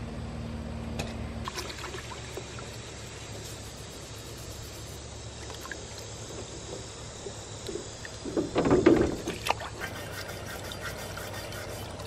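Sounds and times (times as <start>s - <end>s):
water sloshing in metal tub: 1.4s - 2.8s, 8.0s - 12.0s.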